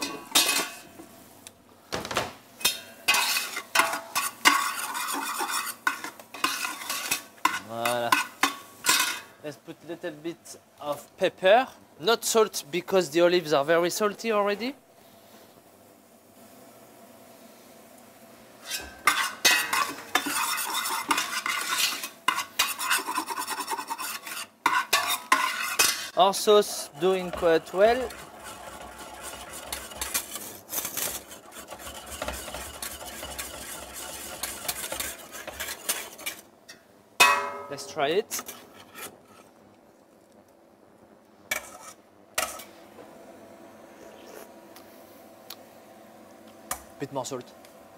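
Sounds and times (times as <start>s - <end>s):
light sizzle: 2.6s - 43.1s
metal spoon scraping a pot: 2.7s - 9.3s, 18.6s - 26.2s, 27.0s - 36.5s, 38.3s - 39.5s, 41.5s - 42.7s.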